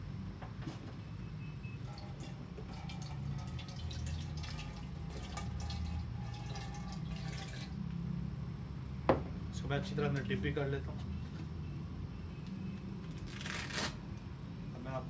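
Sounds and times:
low steady hum: 0.0s - 15.0s
water splashing and dripping: 1.9s - 7.8s.

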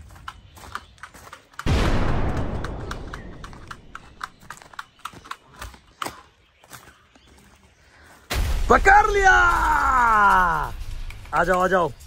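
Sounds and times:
loud bang: 1.7s - 3.8s, 8.3s - 10.9s.

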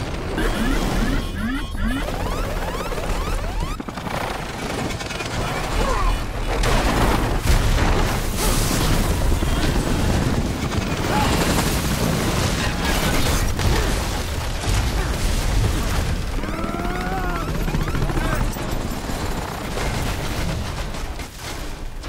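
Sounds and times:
helicopter engine and rotor rumble: 0.0s - 7.1s, 9.0s - 13.6s, 15.9s - 21.3s.

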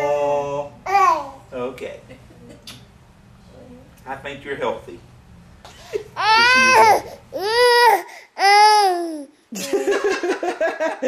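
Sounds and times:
baby cooing: 0.9s - 1.4s, 6.2s - 9.3s.

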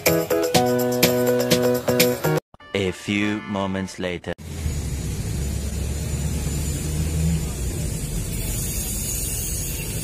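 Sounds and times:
vehicle engine and road rumble: 4.4s - 10.0s.

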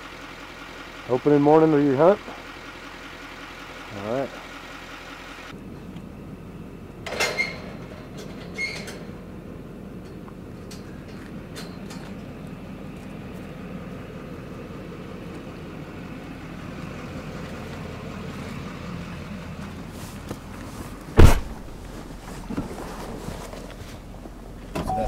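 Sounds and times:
truck engine idling: 0.0s - 25.0s
vehicle door shutting: 21.2s - 23.2s, 24.7s - 25.0s.

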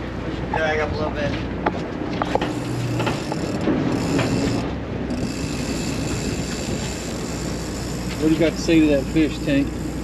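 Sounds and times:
boat drone: 0.0s - 10.0s
fishing reel gears whirring: 2.3s - 10.0s.

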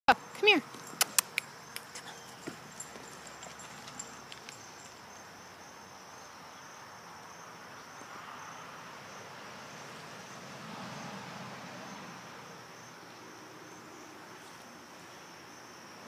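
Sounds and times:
high-pitched insect trill: 0.1s - 10.4s.

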